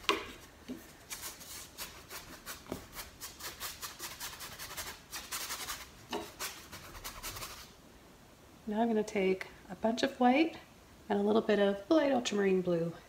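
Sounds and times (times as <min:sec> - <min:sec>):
paintbrush scrubbing canvas: 0:00.3 - 0:07.7.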